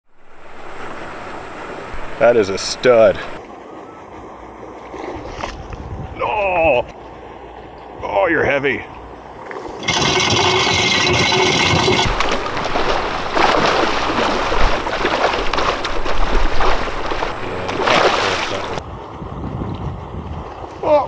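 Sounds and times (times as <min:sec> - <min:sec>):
fish splashing: 0:00.0 - 0:03.4, 0:09.8 - 0:18.8
fish feeder whirring: 0:00.1 - 0:03.4, 0:09.8 - 0:18.8.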